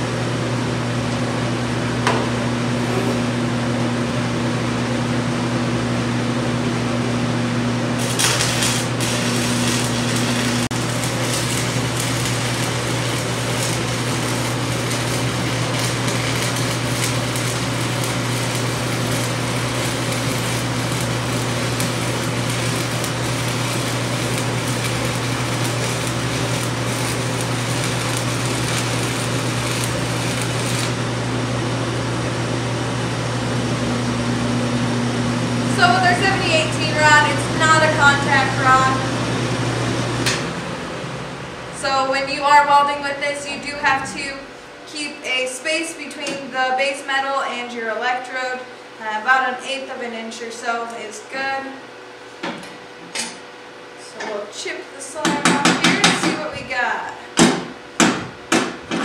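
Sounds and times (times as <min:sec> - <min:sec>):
ventilation fan hum: 0:00.0 - 0:59.0
welding arc crackling: 0:07.5 - 0:31.7, 0:35.1 - 0:39.1.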